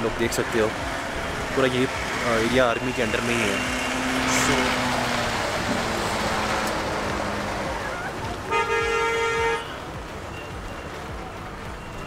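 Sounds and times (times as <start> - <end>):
van passing: 0.0 - 12.0
vehicle horn toot: 8.5 - 9.8.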